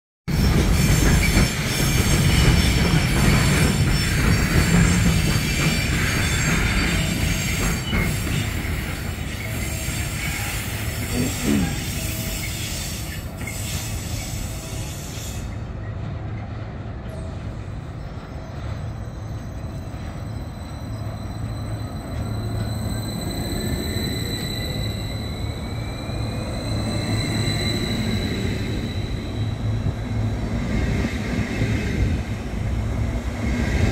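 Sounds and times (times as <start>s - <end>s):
train pulling away: 0.3s - 33.9s.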